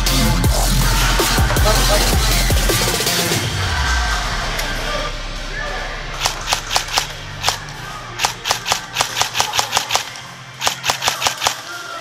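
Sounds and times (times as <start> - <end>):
airsoft rifle shots: 6.2 - 11.7.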